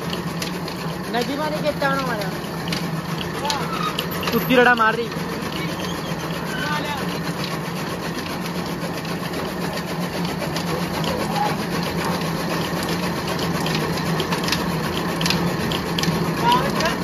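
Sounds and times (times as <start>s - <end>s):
chaff cutter clattering: 0.0s - 17.0s.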